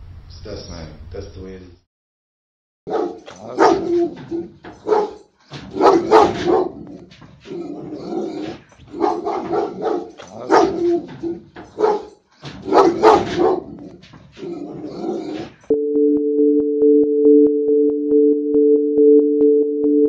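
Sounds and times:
dog barking: 2.9 - 15.6.

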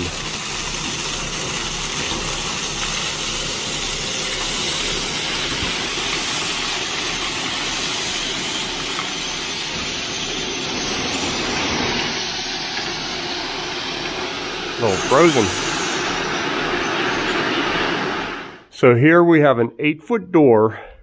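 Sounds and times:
crushed stone pouring: 0.0 - 11.5.

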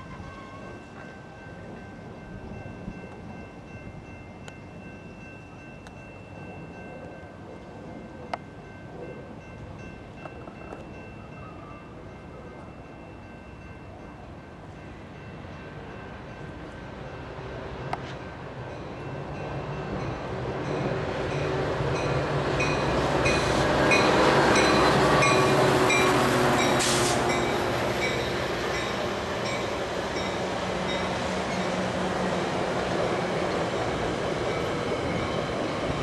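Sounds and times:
diesel locomotive drone: 0.0 - 36.0
brief hiss: 26.8 - 27.3.

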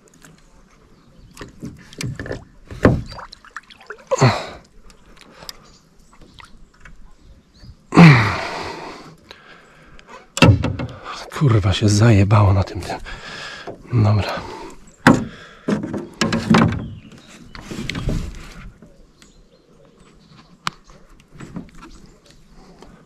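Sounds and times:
man grunting: 4.1 - 4.6, 7.9 - 8.6
man sighing loudly: 4.1 - 4.6, 7.9 - 9.1.

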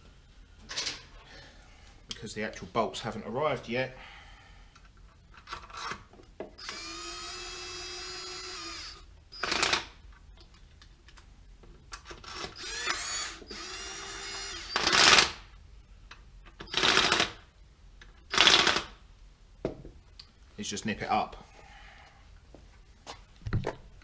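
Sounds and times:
cordless drill motor whining: 6.6 - 9.7, 12.4 - 15.0.

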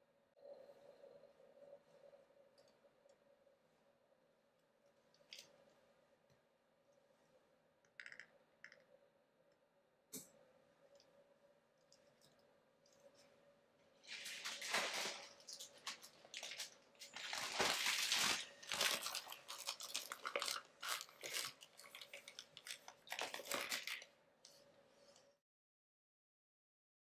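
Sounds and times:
plastic bags crinkling: 14.0 - 24.1.

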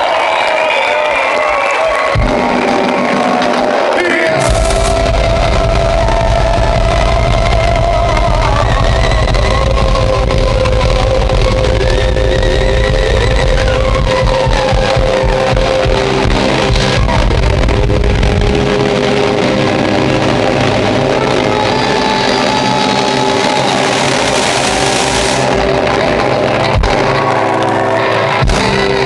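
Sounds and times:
live band playing: 1.4 - 29.0
saxophone: 2.3 - 29.0
person singing into microphone: 3.1 - 19.6.

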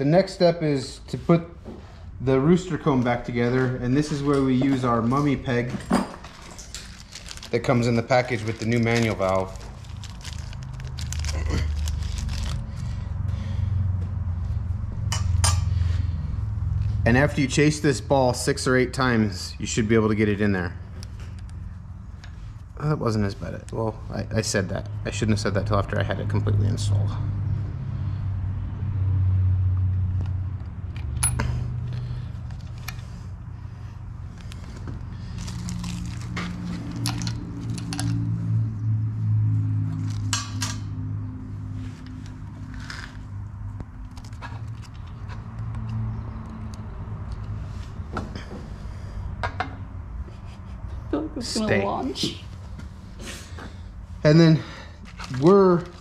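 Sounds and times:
metal parts clicking and clinking: 5.6 - 7.9, 30.9 - 31.6, 36.9 - 38.2
plastic bag crinkling: 6.4 - 12.9, 35.2 - 37.3.

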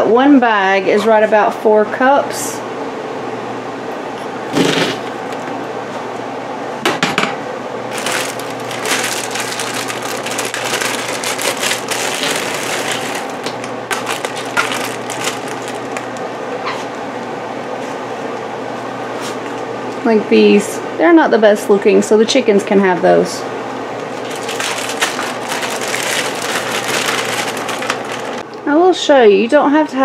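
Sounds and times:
steady low hum: 0.0 - 28.8
frozen berries clattering into a cup: 7.9 - 16.3, 24.2 - 28.4.

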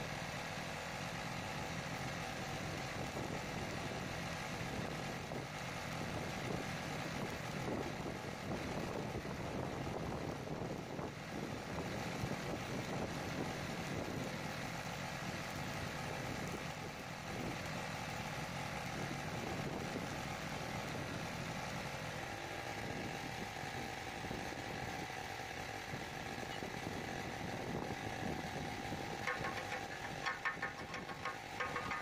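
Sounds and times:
steady machine noise: 27.8 - 32.0
rapid crackling: 29.2 - 32.0.

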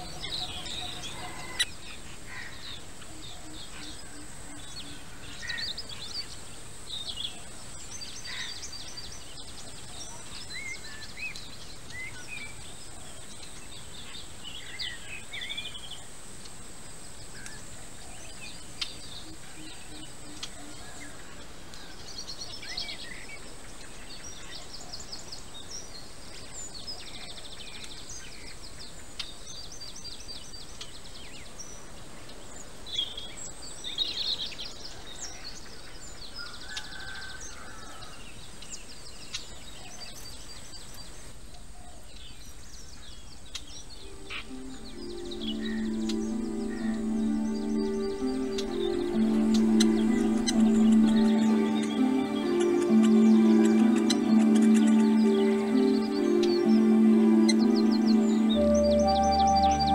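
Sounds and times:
birds chirping and trilling: 0.0 - 6.4, 43.6 - 59.9.

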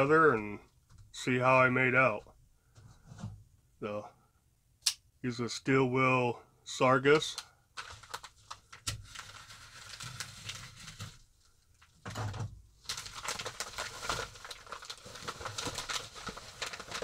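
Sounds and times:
padded envelope crinkling: 7.8 - 12.0, 12.8 - 17.0.

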